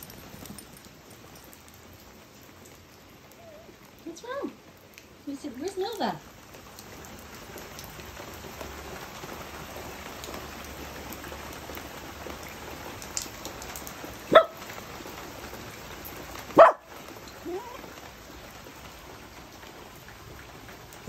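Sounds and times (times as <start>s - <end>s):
rain on paved patio: 0.0s - 21.0s
small dog barking: 14.3s - 14.7s, 16.5s - 16.9s.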